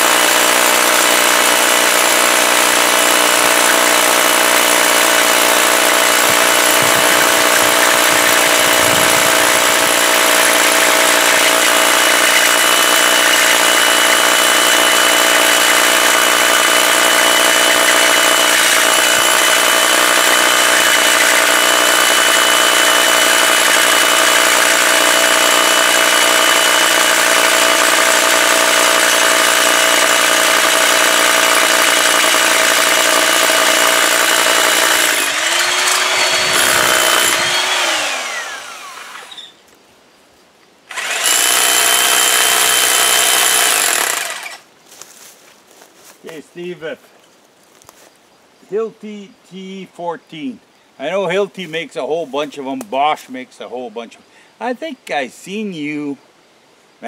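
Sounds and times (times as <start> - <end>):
hammer drill boring into stone: 0.0 - 39.6, 40.9 - 44.6.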